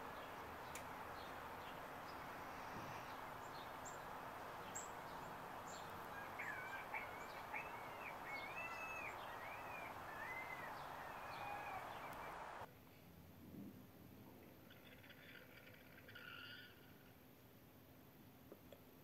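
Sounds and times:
outdoor background hiss: 0.0s - 15.6s, 16.3s - 19.0s
songbird warbling: 0.2s - 12.6s.

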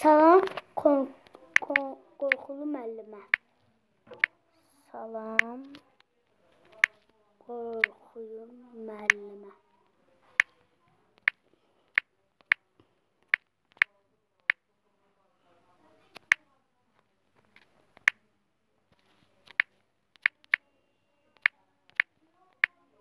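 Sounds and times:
phone keyboard clicks: 6.6s - 7.1s, 19.4s - 20.6s.

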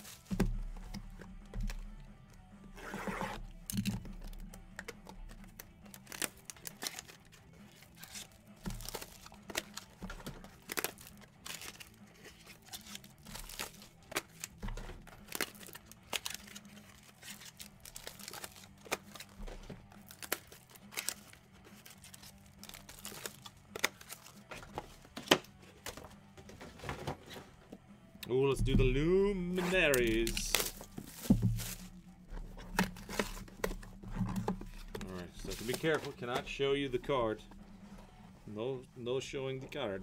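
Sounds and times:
plastic wrapping crinkling and tearing: 3.7s - 25.4s, 29.6s - 37.6s.

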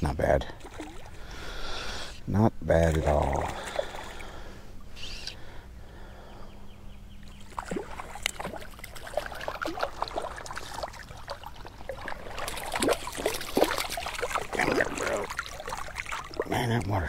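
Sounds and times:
water splashing and dripping: 0.6s - 1.2s, 7.5s - 17.0s.

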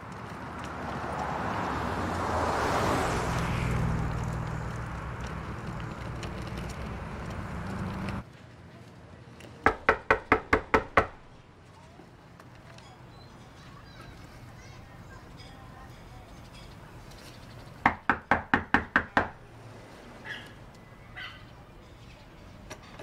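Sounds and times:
road traffic: 0.0s - 23.0s
fist knocking on door: 9.7s - 11.2s, 17.9s - 19.4s.

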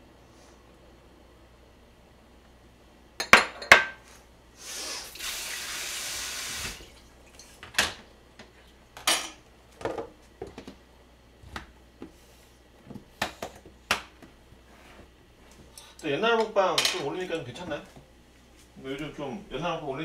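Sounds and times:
water running from tap: 5.1s - 7.6s.

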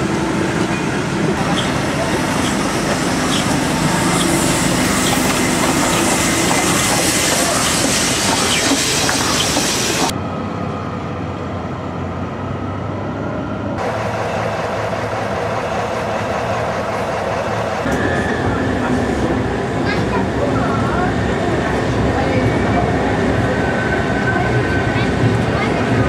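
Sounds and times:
train wheels clicking over rail joints: 0.6s - 10.1s
steam hissing: 1.4s - 10.1s.

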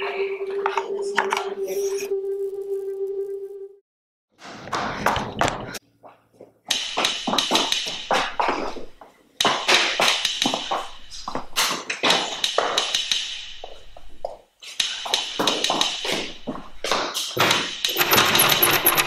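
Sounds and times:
running footsteps on tiled floor: 4.4s - 17.5s.

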